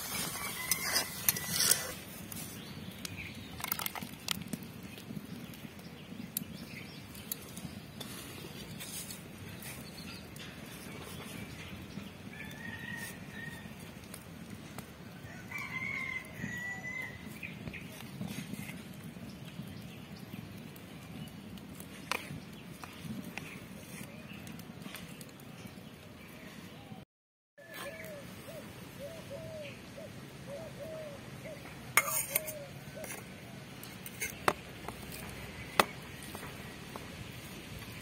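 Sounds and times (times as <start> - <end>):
outdoor background hiss: 0.0 - 17.8, 27.8 - 38.0.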